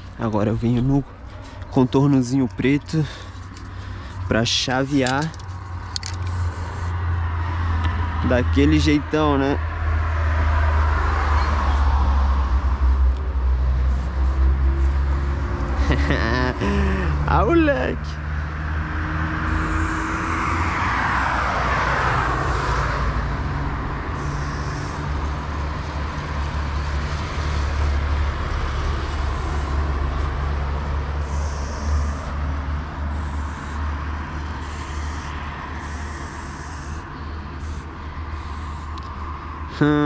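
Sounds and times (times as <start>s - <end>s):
road traffic rumble: 0.0s - 40.0s
vehicle passing: 0.0s - 40.0s
spray paint can hissing: 6.0s - 7.0s, 13.8s - 15.2s, 19.5s - 20.6s, 24.2s - 25.1s, 27.6s - 28.4s, 29.0s - 30.0s, 31.2s - 32.4s, 33.1s - 33.9s, 34.6s - 39.1s.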